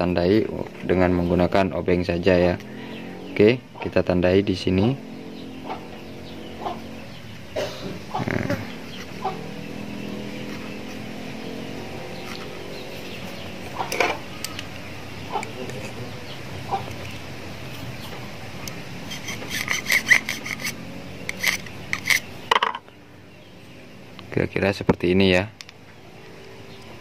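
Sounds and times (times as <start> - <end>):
chickens clucking: 2.5 - 4.1, 5.4 - 22.9
metal tool clicking and scraping: 16.8 - 22.8.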